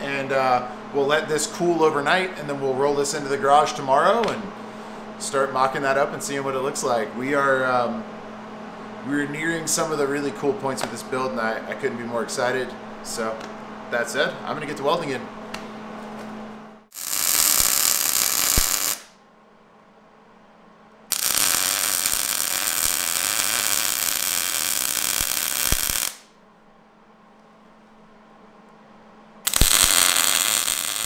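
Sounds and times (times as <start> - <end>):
welder arc sizzling: 16.9 - 19.1, 21.1 - 26.3, 29.4 - 31.0.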